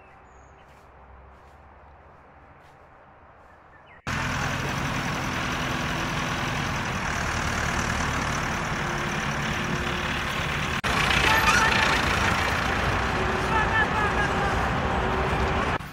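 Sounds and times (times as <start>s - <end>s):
tractor engine running: 4.1s - 15.9s.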